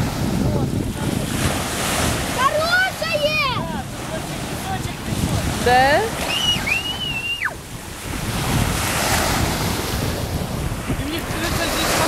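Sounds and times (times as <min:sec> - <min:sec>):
waves washing on sandy shore: 0:00.0 - 0:12.0
wind buffeting microphone: 0:00.0 - 0:12.0.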